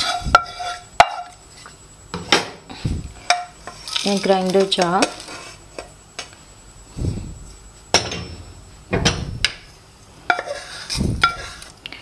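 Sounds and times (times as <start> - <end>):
wooden spatula scraping spices: 0.0 - 1.7, 10.3 - 11.8.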